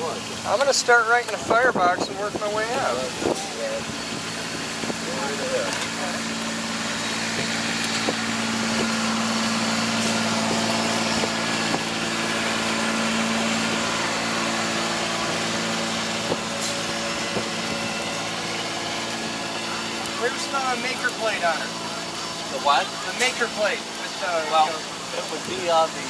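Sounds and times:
machinery hum: 0.0s - 26.0s.

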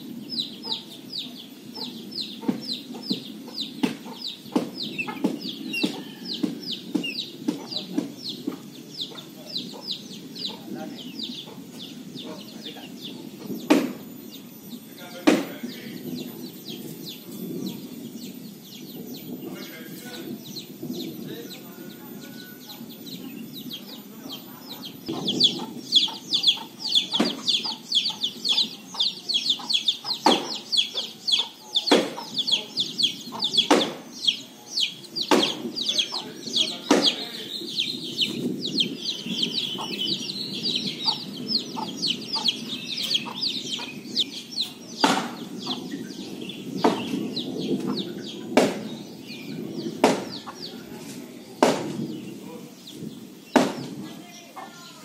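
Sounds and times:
birds chattering: 0.0s - 55.0s
sharp chopping knocks: 30.2s - 30.6s, 31.9s - 32.3s, 33.6s - 34.0s, 35.3s - 35.6s, 45.0s - 45.4s, 50.0s - 50.4s, 51.6s - 52.0s, 53.6s - 53.9s.

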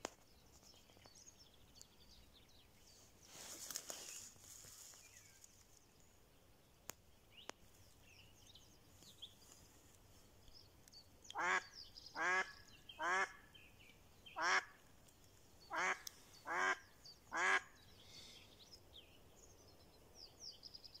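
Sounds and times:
duck quacking: 11.4s - 13.4s, 14.4s - 14.7s, 15.7s - 17.7s.

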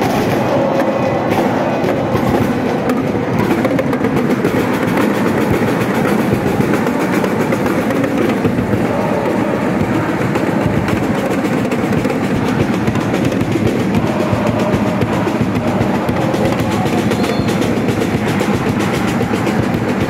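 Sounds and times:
continuous drumming: 0.0s - 20.0s
crowd chanting in unison: 0.0s - 20.0s.

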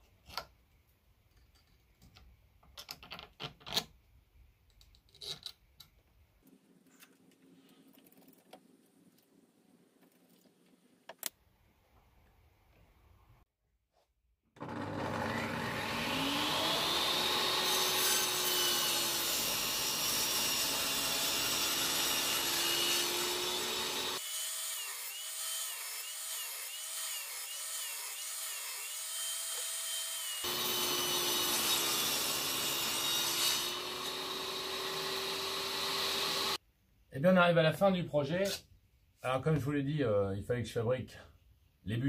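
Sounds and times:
table saw cutting plywood: 14.6s - 36.6s.

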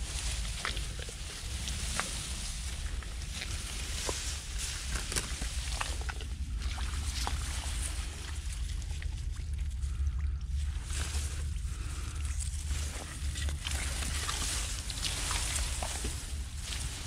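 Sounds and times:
feet sloshing in muddy water: 0.0s - 17.0s
rice plants rustling: 0.0s - 17.0s
steady low rumble: 0.0s - 17.0s.

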